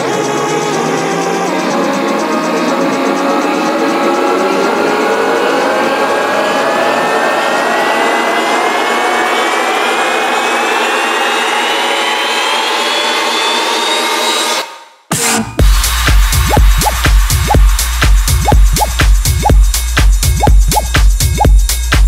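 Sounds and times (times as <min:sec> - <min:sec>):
electronic dance music: 0:15.2 - 0:22.0
bass-heavy drop with kick drums: 0:15.6 - 0:22.0.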